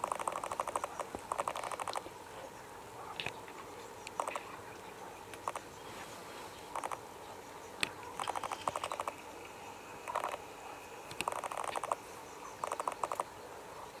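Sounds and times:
rattling animal calls: 0.0s - 2.1s, 4.1s - 4.6s, 6.7s - 7.0s, 7.8s - 9.3s, 10.1s - 10.4s, 11.1s - 13.3s.

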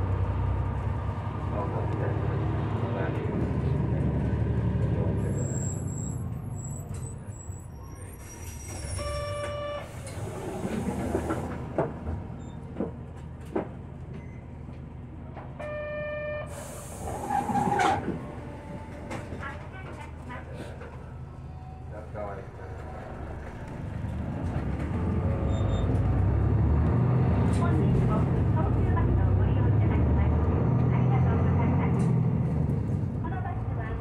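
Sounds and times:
bus diesel engine rumbling: 0.0s - 34.0s
compressed air hiss: 16.5s - 17.4s.

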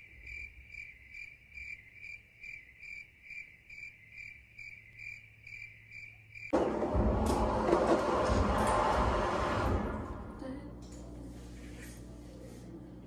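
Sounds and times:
crickets chirping: 0.0s - 6.6s.

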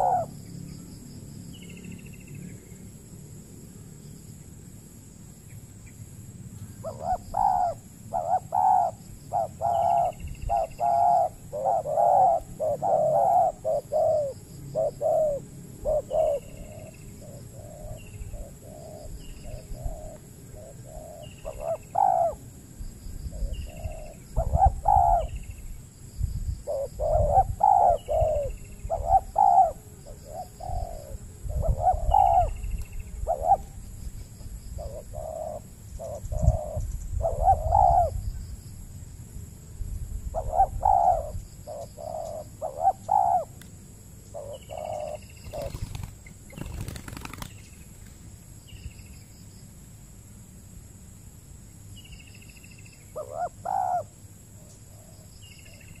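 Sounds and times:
doves cooing: 0.0s - 0.4s, 6.8s - 22.4s, 23.3s - 25.4s, 26.6s - 33.8s, 34.8s - 38.2s, 40.4s - 43.6s, 44.3s - 47.5s, 53.2s - 54.2s
small bird chirping: 40.4s - 43.6s, 44.2s - 47.9s.

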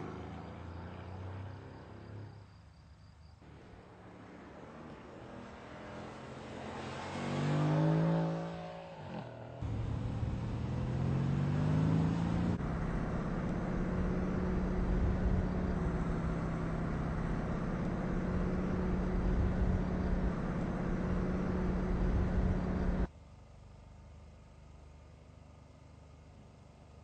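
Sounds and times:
car engine accelerating: 3.5s - 23.1s.

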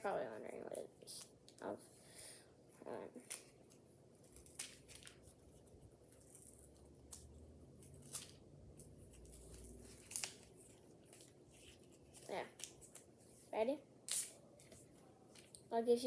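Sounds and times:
package clicks and rustles: 3.2s - 5.5s, 6.1s - 13.1s.

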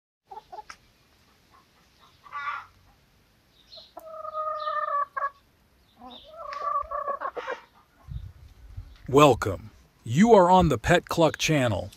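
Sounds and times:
chickens clucking: 0.3s - 8.5s
drawn-out chicken calls: 0.3s - 8.5s.

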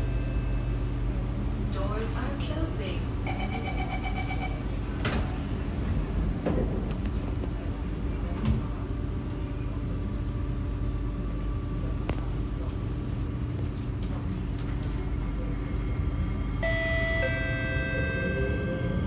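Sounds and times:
train carriage rumble and hum: 0.0s - 19.0s
traction motor whine: 16.6s - 19.0s.

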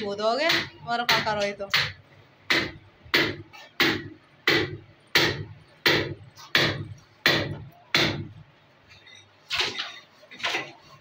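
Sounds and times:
sharp knocks: 0.5s - 8.4s.

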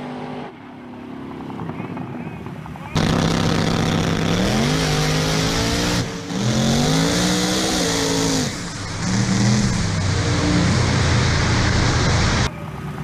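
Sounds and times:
truck engine accelerating hard: 2.9s - 13.0s.

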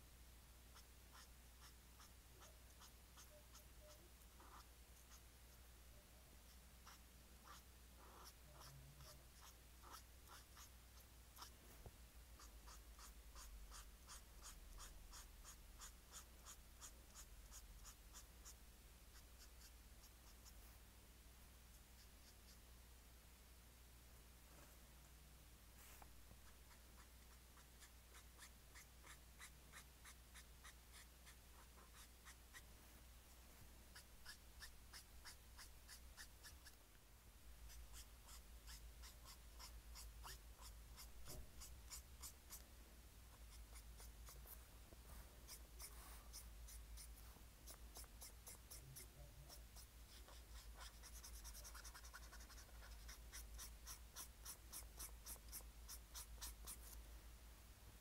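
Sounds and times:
pen scratching on paper: 0.7s - 5.3s, 6.4s - 11.6s, 12.4s - 20.6s, 25.8s - 32.7s, 33.9s - 36.8s, 37.7s - 42.6s, 43.3s - 57.0s.

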